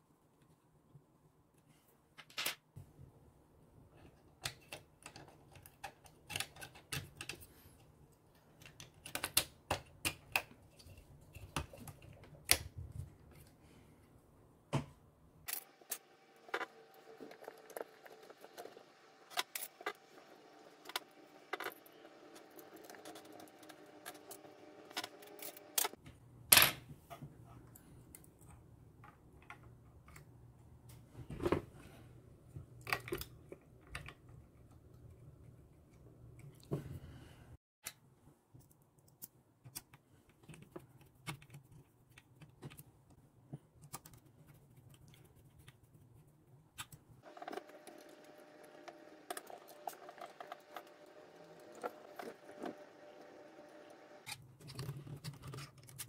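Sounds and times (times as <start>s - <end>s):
plastic parts clicking and tapping: 4.0s - 7.5s, 8.4s - 12.7s.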